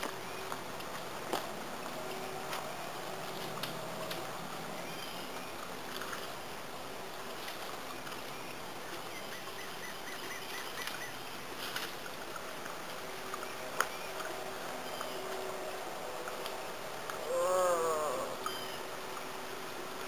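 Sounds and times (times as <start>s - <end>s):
creek rushing: 0.0s - 20.0s
bird calling: 17.2s - 18.8s.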